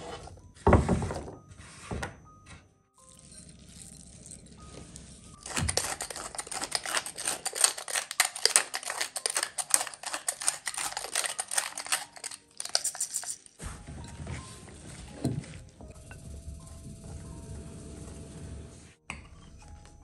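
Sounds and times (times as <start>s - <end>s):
pepper mill grinding: 5.4s - 13.6s.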